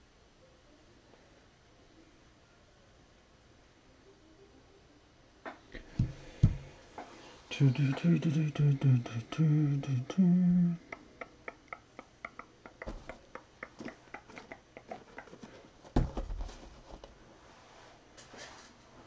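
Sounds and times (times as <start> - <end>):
person humming: 5.8 - 6.7, 7.5 - 15.4.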